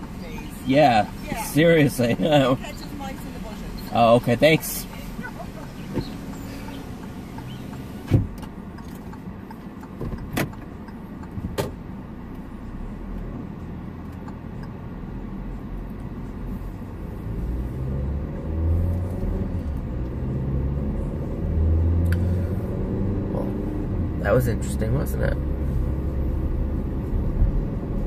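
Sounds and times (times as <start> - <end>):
car engine and road rumble: 0.0 - 28.0
sharp clicks and knocks: 7.0 - 11.8.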